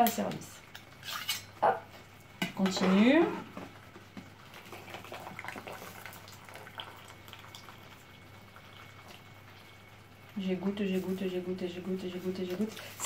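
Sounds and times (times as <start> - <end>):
low steady hum: 0.0 - 13.0
water dripping into a pot: 4.9 - 10.4.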